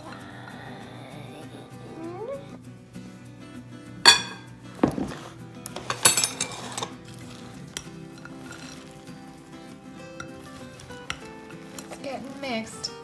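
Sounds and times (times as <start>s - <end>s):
background music: 0.0s - 13.0s
bowls clinking on countertop: 4.1s - 5.2s, 5.8s - 7.0s.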